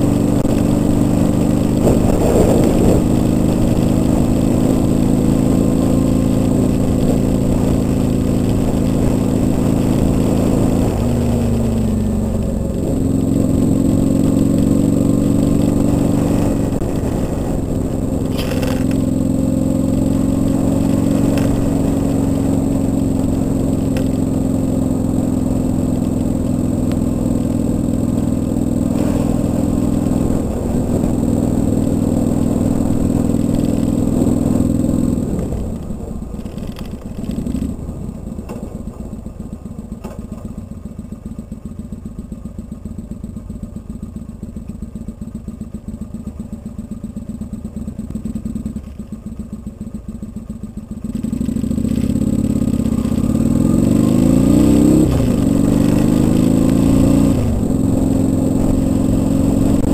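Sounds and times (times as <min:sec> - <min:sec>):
motorcycle engine riding: 0:00.0 - 0:59.9.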